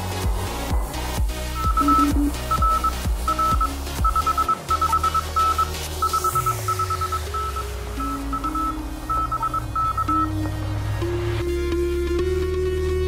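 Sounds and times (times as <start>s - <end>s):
background music with low notes: 0.0s - 13.0s
morse code beeping: 1.5s - 10.5s.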